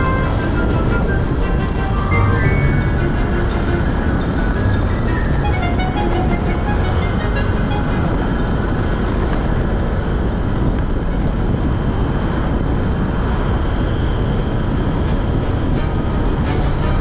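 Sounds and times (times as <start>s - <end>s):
wind rumbling on microphone: 0.0s - 17.0s.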